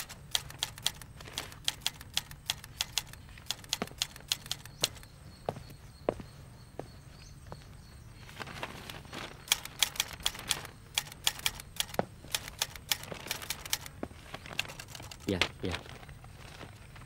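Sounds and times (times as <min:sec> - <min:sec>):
manual typewriter key strikes: 0:00.0 - 0:05.1, 0:09.5 - 0:14.0, 0:14.6 - 0:15.3.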